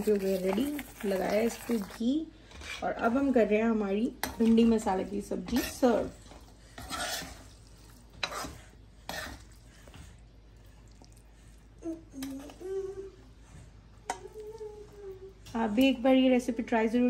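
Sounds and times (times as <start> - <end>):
metal ladle scraping a pot: 5.5 - 7.6, 8.2 - 9.4.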